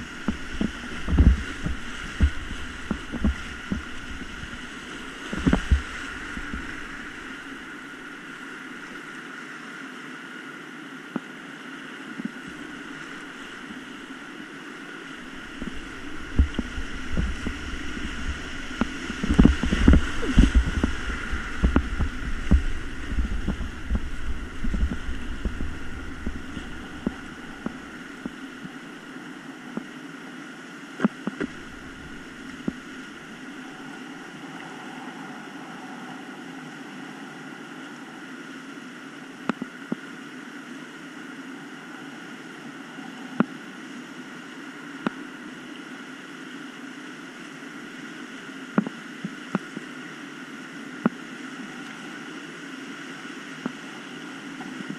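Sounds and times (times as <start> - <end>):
kayak thumps and splashes: 0.0 - 7.5, 15.2 - 28.8
rushing whitewater: 0.0 - 54.9.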